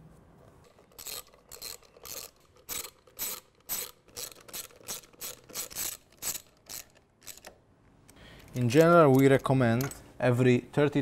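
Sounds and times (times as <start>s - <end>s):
hand ratchet clicking: 0.7s - 7.6s.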